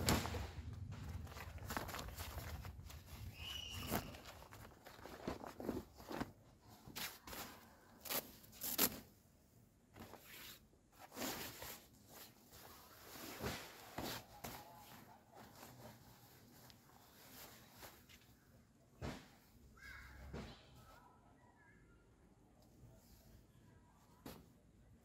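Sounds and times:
fabric rustling and swishing: 0:00.0 - 0:09.1, 0:09.9 - 0:19.7.

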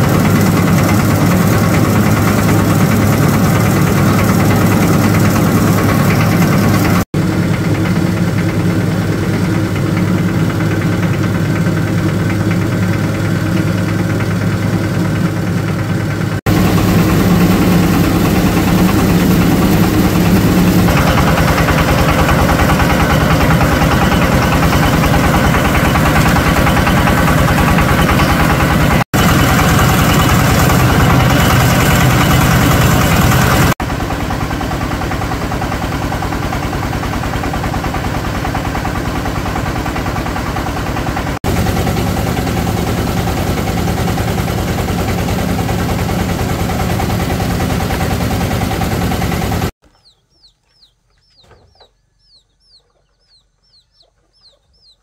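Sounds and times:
motor engine running: 0:00.0 - 0:55.0
chicken cheeping: 0:49.8 - 0:55.0.

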